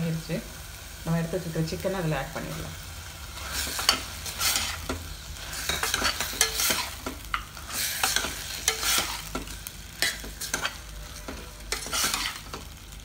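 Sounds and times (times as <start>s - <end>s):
frying sizzle in oil: 0.0s - 13.0s
metal ladle stirring and scraping: 3.4s - 12.7s.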